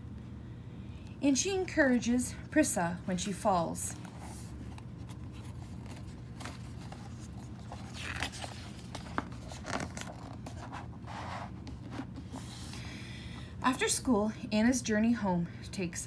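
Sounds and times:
soft paper rustle: 0:03.8 - 0:12.8
paper page turning: 0:03.9 - 0:12.8.

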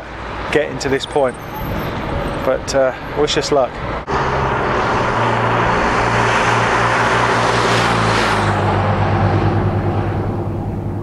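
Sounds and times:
motorcycle passing at speed: 0:04.1 - 0:11.0.

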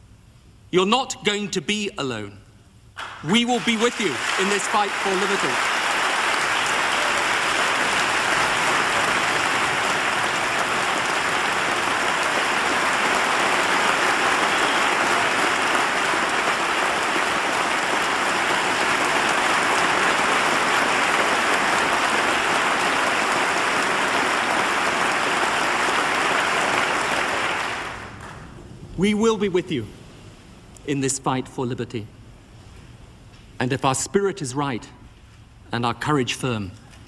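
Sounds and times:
large audience applauding: 0:03.0 - 0:28.5.

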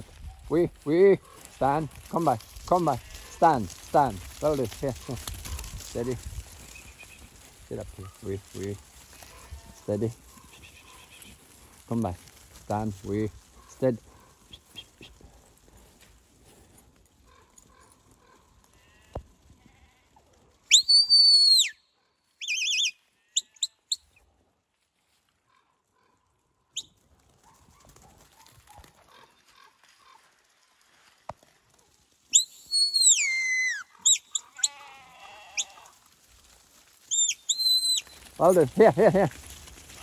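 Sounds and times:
shepherd's whistle commands: 0:20.7 - 0:21.8, 0:22.4 - 0:22.9, 0:32.3 - 0:34.4, 0:37.1 - 0:38.1.

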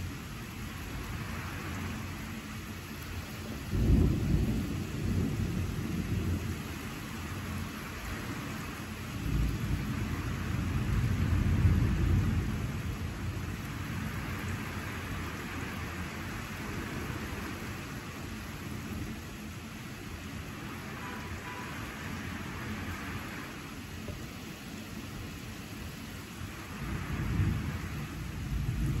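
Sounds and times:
steady rain: 0:00.0 - 0:29.0
thunder rumbling: 0:03.4 - 0:19.6, 0:26.3 - 0:29.0.

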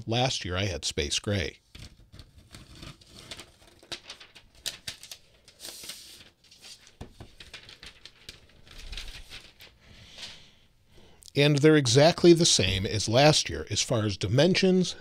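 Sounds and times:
paper wrap rustling and crinkling: 0:01.7 - 0:09.8.

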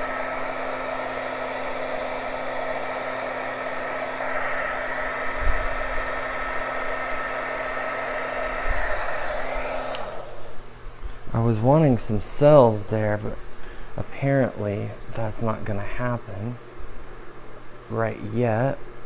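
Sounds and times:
heat gun blowing: 0:00.0 - 0:10.7.

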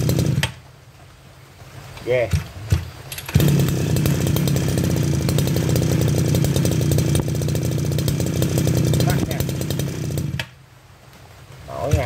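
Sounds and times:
brush cutter engine running: 0:00.0 - 0:00.6, 0:02.3 - 0:10.6, 0:11.7 - 0:12.0.

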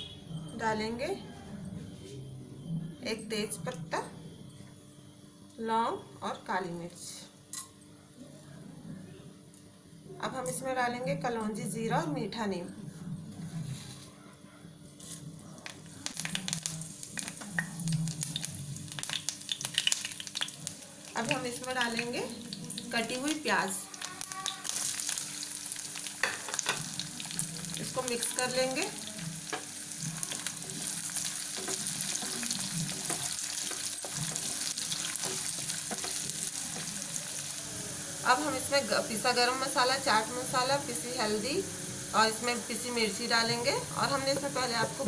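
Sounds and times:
seeds sizzling in hot oil: 0:15.8 - 0:45.0
spatula tapping and scraping pan: 0:35.2 - 0:36.9.

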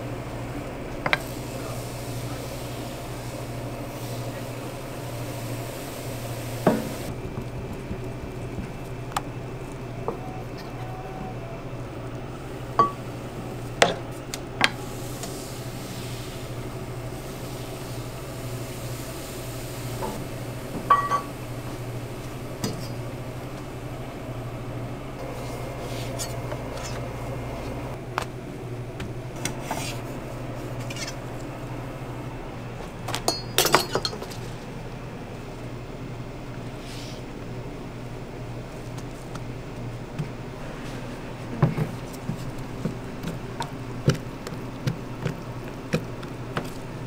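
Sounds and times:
metal utensils clinking: 0:20.9 - 0:21.3, 0:33.2 - 0:34.5.

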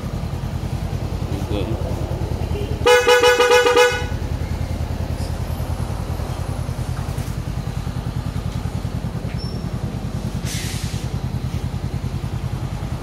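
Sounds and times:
motorcycle engine idling: 0:00.0 - 0:13.0
motorcycle horn beeping: 0:02.3 - 0:05.0.

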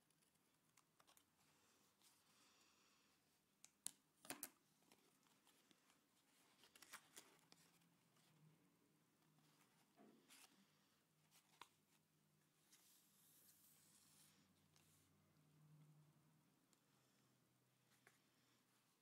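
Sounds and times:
paper rustling and crinkling: 0:04.9 - 0:07.9.

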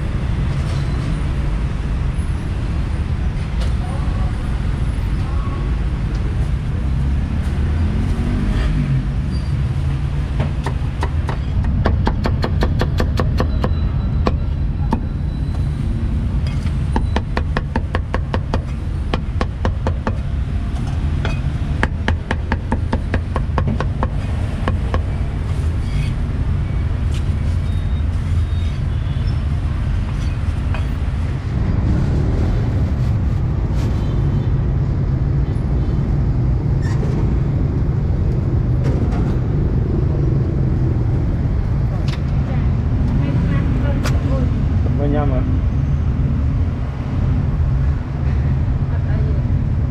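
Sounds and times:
street traffic rumble: 0:00.0 - 0:49.9
cleaver chopping on wooden block: 0:10.5 - 0:15.1.

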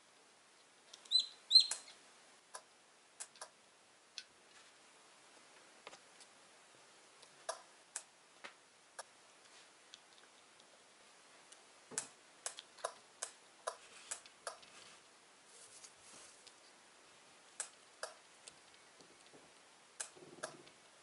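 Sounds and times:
chicks pecking at eggshells: 0:01.0 - 0:02.6.

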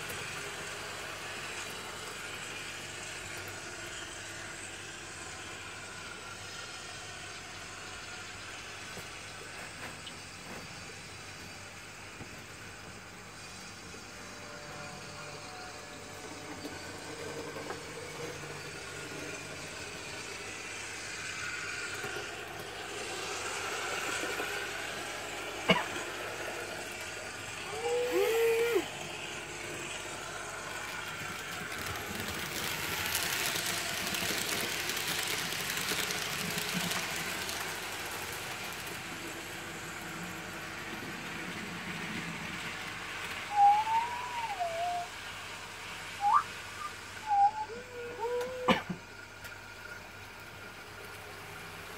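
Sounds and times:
model train whirring: 0:00.0 - 0:51.9.

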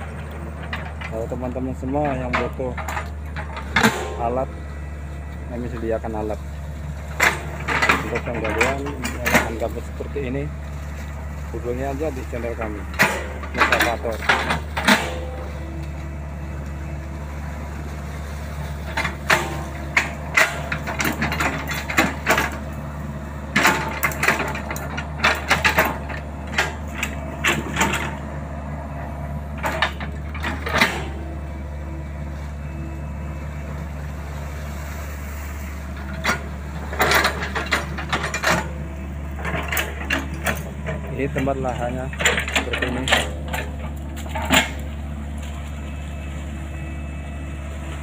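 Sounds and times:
knocks and clanks of digging bucket: 0:00.0 - 0:04.6, 0:07.1 - 0:10.6, 0:11.6 - 0:16.2, 0:18.7 - 0:31.6, 0:35.9 - 0:45.8
excavator diesel engine running: 0:00.0 - 0:48.0.

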